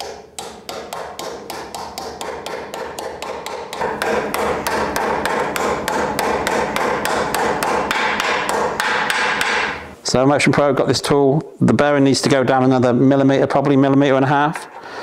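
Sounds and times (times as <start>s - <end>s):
mallet tapping on metal: 0.0s - 9.8s.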